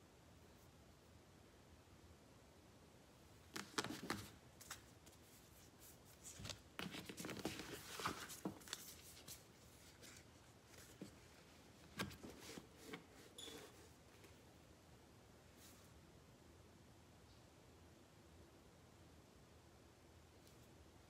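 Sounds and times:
cards rustling: 0:03.5 - 0:13.3.

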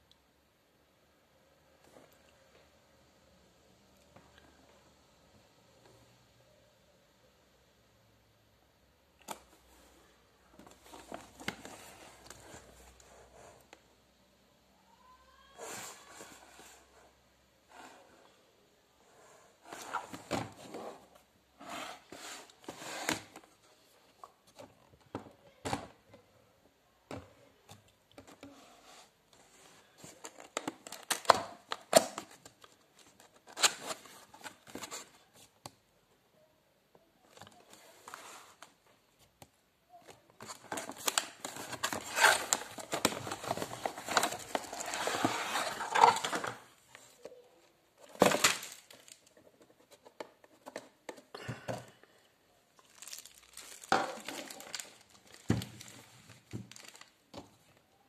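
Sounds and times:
cardboard and plastic crinkling: 0:40.0 - 0:47.2, 0:48.0 - 0:51.2, 0:52.8 - 0:57.8.

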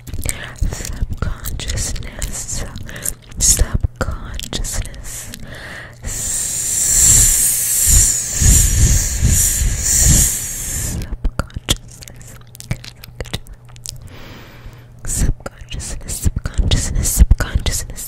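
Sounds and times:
mouth clicks chewing gum: 0:00.0 - 0:05.5, 0:06.1 - 0:14.0
drawn-out hiss into microphone: 0:06.0 - 0:11.1.

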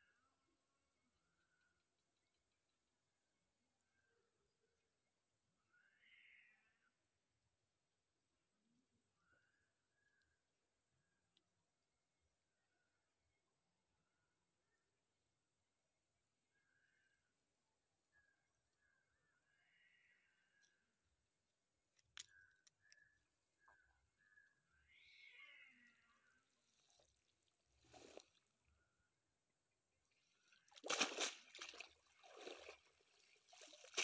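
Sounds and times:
faint bird call: 0:05.6 - 0:07.0, 0:18.1 - 0:20.9, 0:22.2 - 0:27.1
water splashing off net: 0:30.7 - 0:34.0.

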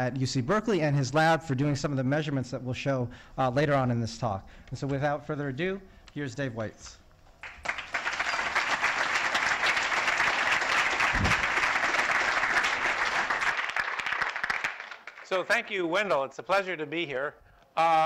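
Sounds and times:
audience applauding: 0:07.4 - 0:15.8.

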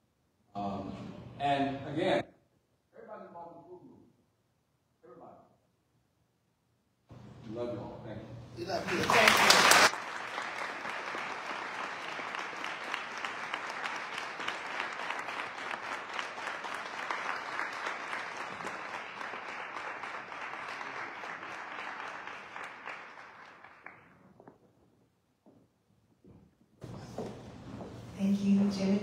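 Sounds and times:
audience applauding: 0:08.6 - 0:24.4.

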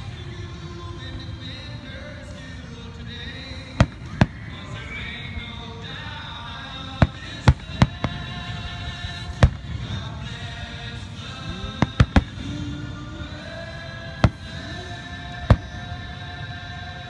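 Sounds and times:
background music: 0:00.0 - 0:17.0
firework shells bursting: 0:03.8 - 0:04.8, 0:07.0 - 0:10.2, 0:11.6 - 0:12.6, 0:14.2 - 0:14.7.

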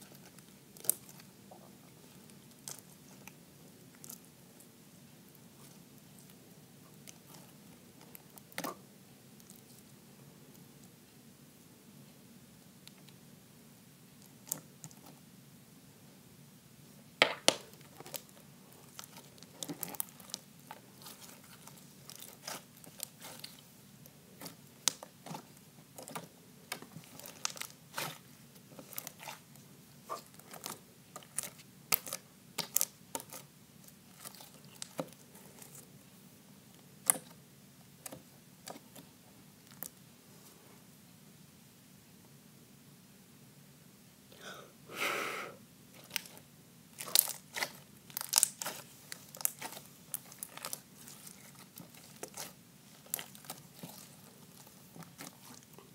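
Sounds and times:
slime popping and crackling: 0:00.0 - 0:01.3, 0:17.2 - 0:23.7, 0:24.4 - 0:35.8, 0:45.9 - 0:55.9.

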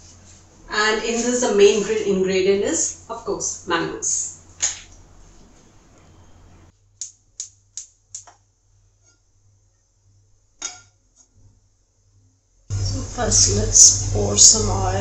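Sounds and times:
metal pan knocking on grate: 0:10.6 - 0:10.9.

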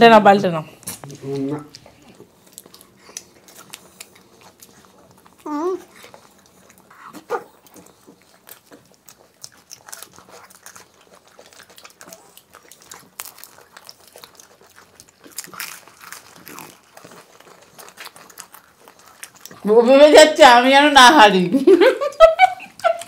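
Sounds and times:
wet mouth smacking: 0:00.8 - 0:09.0
crunching wafer cones: 0:00.8 - 0:21.3.

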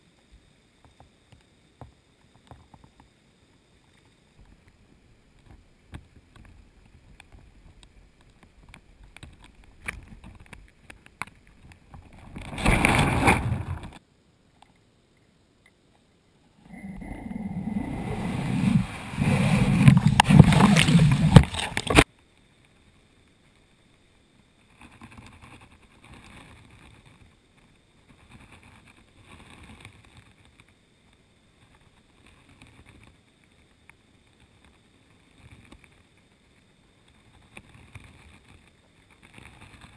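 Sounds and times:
rush of water: 0:05.4 - 0:14.0, 0:16.7 - 0:22.1
low rumble: 0:16.6 - 0:22.0.

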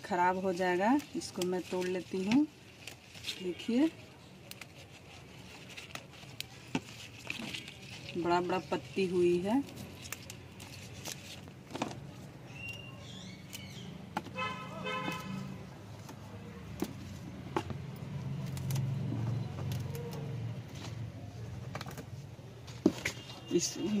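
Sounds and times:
road traffic rumble: 0:00.0 - 0:24.0
vehicle horn: 0:14.3 - 0:15.6.

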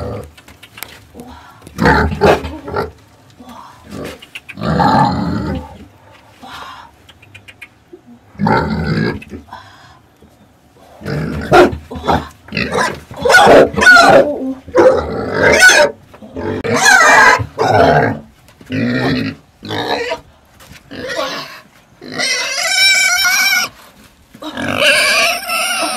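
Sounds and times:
young pig squealing and grunting: 0:03.9 - 0:05.9, 0:08.3 - 0:09.4, 0:10.9 - 0:20.3, 0:20.9 - 0:23.8, 0:24.4 - 0:25.9.

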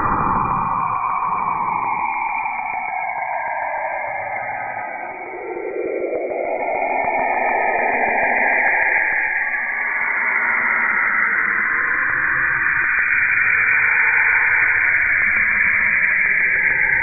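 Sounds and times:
low hum: 0:00.0 - 0:03.4.

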